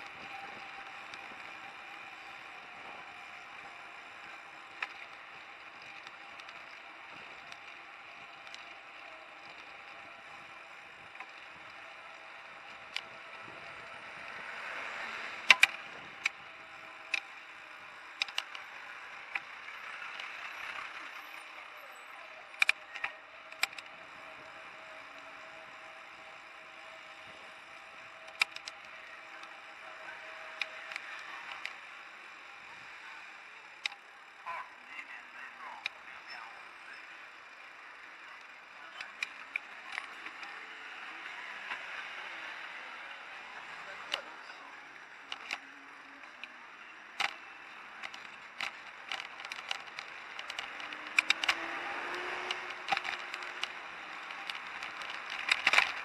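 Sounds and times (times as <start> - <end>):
street traffic hiss: 0.0 - 56.0
sharp clicks and knocks: 15.4 - 17.5, 18.1 - 19.5, 22.5 - 24.0, 28.1 - 29.6, 46.2 - 47.4, 48.0 - 56.0.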